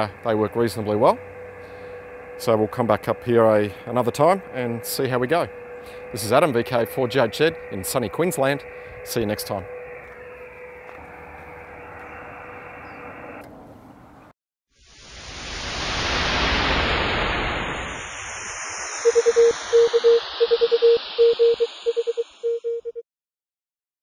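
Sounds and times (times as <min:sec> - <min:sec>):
radio hiss: 0:00.0 - 0:10.6, 0:14.8 - 0:22.6
steady radio tone: 0:00.0 - 0:13.4, 0:15.0 - 0:23.0
whoosh of noise: 0:14.8 - 0:22.6
morse code beeps: 0:19.0 - 0:23.0.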